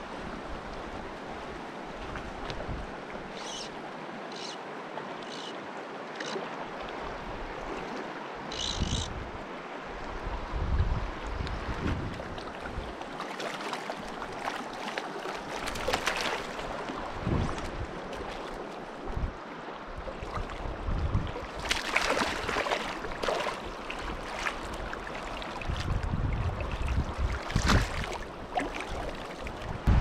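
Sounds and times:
stream water rushing: 0.0 - 30.0
wind rumble on microphone: 2.0 - 3.0, 8.6 - 13.0, 17.0 - 18.1, 19.0 - 21.8, 25.6 - 28.5, 29.5 - 30.0
fish splashing in net: 14.4 - 16.6, 21.6 - 23.6.

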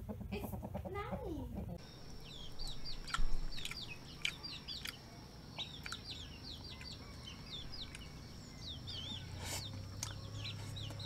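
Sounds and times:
chicks peeping: 0.1 - 11.0
sharp clicks: 2.6 - 5.0, 5.6 - 6.1.

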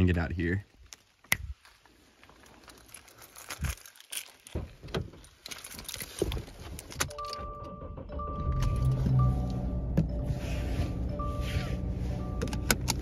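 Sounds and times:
rustling and crinkling handling: 0.6 - 7.1.

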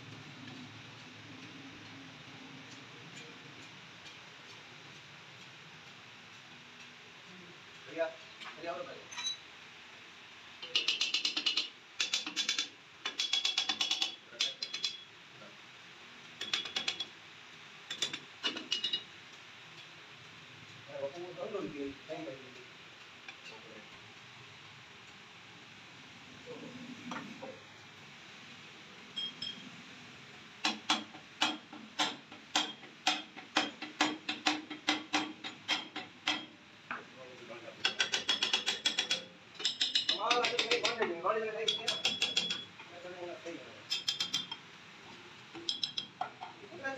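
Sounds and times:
ratchet wrench clicking: 10.6 - 15.0, 16.4 - 17.1, 30.6 - 36.5, 37.8 - 42.8, 43.9 - 44.6, 45.6 - 46.2
hammer striking metal: 30.6 - 36.6, 41.7 - 42.7.

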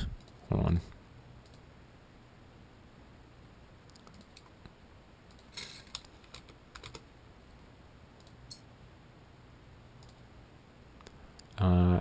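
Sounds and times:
keyboard and mouse clicks: 3.8 - 4.6, 5.3 - 7.0, 8.2 - 8.6, 10.0 - 10.2.

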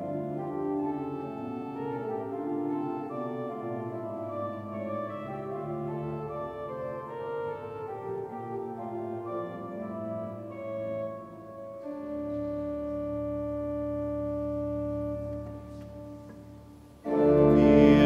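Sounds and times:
church organ playing a hymn: 0.0 - 18.0.

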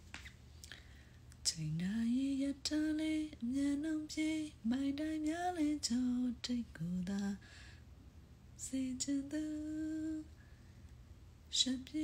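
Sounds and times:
woman singing unaccompanied: 1.4 - 7.4, 8.6 - 10.4, 11.5 - 12.0
singer breathing: 7.4 - 7.9.

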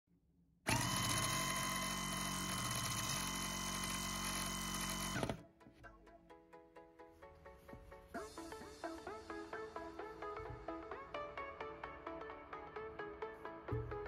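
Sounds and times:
small motor fan whirring: 0.7 - 5.4.

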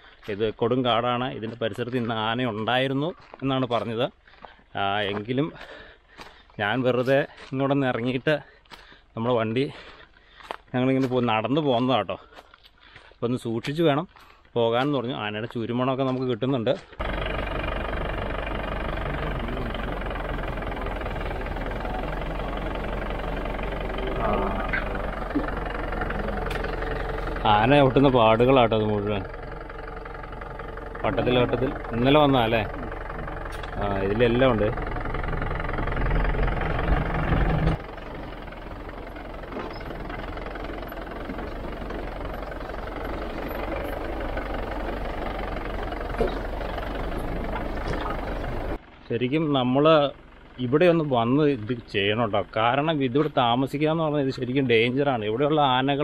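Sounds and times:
car engine running: 16.8 - 56.0.

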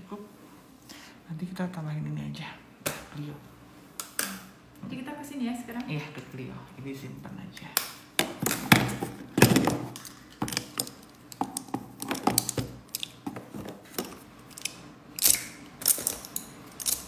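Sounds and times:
makeup items clicking and knocking: 8.2 - 17.0.

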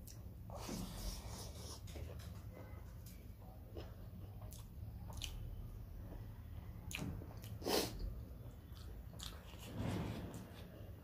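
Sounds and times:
person chewing food: 3.7 - 9.7.

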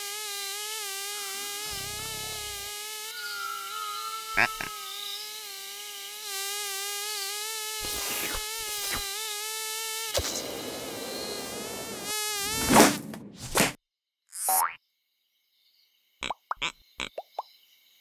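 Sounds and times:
mosquito high whine: 0.0 - 12.8.

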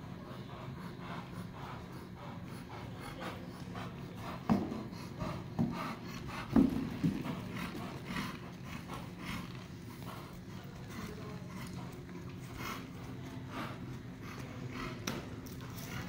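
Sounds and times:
hoofbeats in sand: 0.6 - 15.0
horse hooves on wooden pallet: 4.4 - 9.6.

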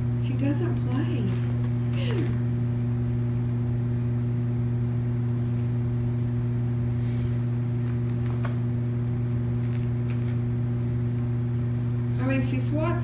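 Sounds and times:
low machine hum: 0.0 - 13.0
kittens pawing at carpet mat: 7.8 - 10.4.

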